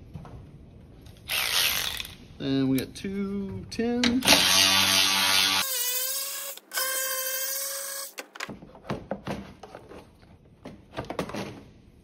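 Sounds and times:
power tool motor whining: 4.2s - 8.2s.

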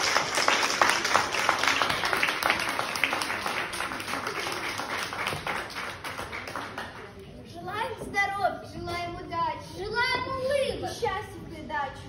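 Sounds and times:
audience applause: 0.0s - 7.2s.

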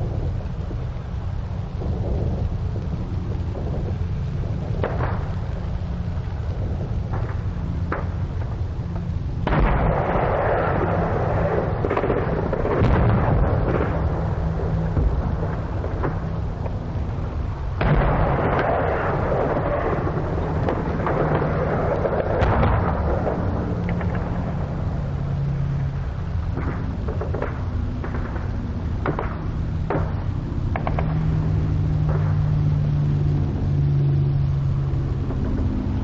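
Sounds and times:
steady low hum: 0.0s - 36.0s
artillery booms: 9.4s - 16.2s, 17.8s - 24.3s
sharp gunshot cracks: 9.5s - 11.0s.

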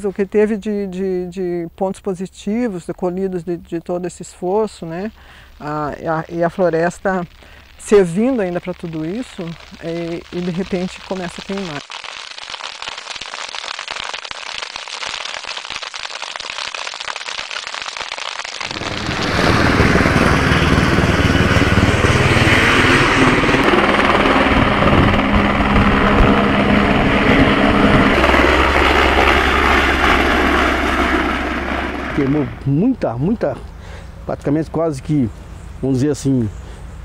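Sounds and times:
wildfire crackling and popping: 4.3s - 32.8s
helicopter rotor and engine: 18.7s - 32.9s.

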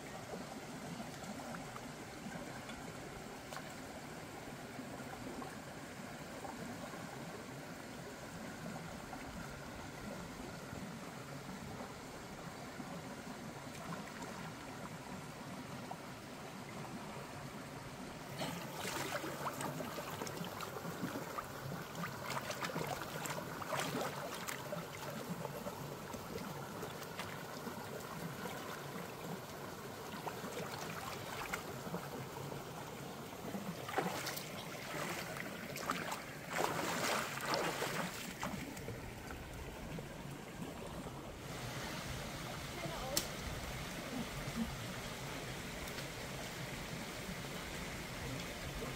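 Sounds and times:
stream running over rocks: 0.0s - 48.9s
fish splashing in water: 33.8s - 38.8s.

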